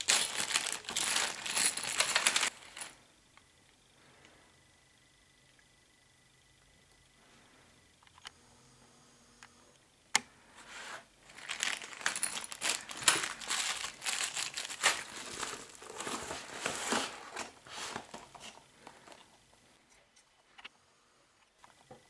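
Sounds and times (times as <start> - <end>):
plastic bag crinkling: 0.0 - 2.9, 11.2 - 18.4.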